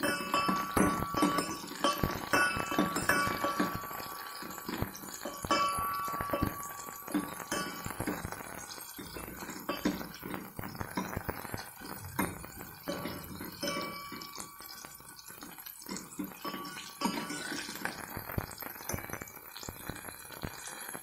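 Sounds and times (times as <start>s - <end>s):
ladle knocking pot ringing: 0.0s - 18.0s
ladle stirring and scraping in pot: 0.0s - 18.2s
food frying in oil: 0.0s - 21.0s.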